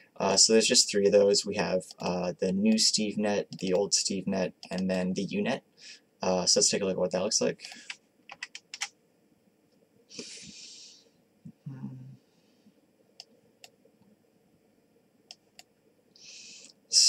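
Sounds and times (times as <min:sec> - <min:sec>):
person breathing out through nose: 0:10.1 - 0:11.1.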